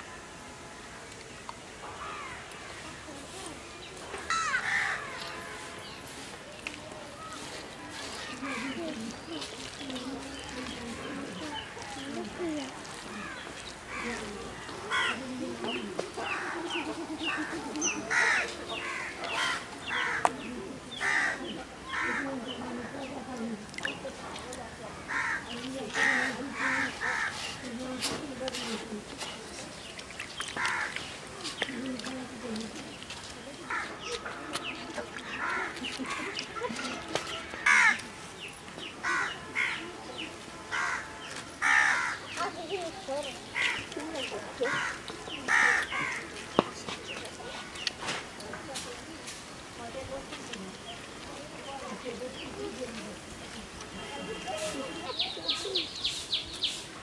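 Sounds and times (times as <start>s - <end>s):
crows cawing: 4.3s - 5.3s, 14.9s - 15.2s, 18.0s - 20.3s, 21.0s - 22.3s, 25.1s - 27.4s, 30.6s - 31.0s, 37.6s - 38.0s, 39.0s - 39.8s, 40.7s - 42.4s, 43.6s - 43.9s, 44.6s - 46.3s.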